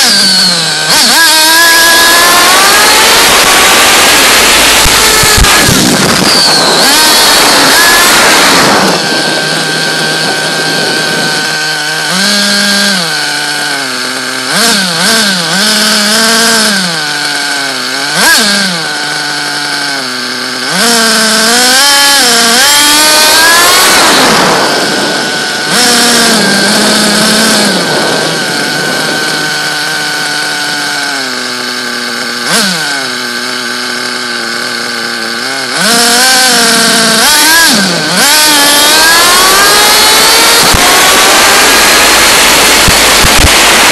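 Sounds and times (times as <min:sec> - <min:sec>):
small engine revving high: 0:00.0 - 0:43.9.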